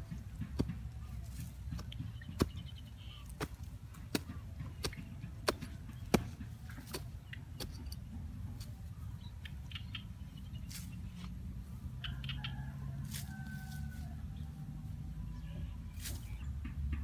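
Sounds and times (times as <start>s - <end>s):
hatchet chopping into soil: 0.1s - 8.0s.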